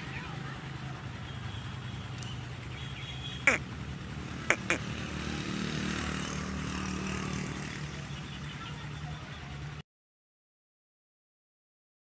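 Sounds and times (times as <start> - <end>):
vehicle engine drone: 0.0 - 9.8.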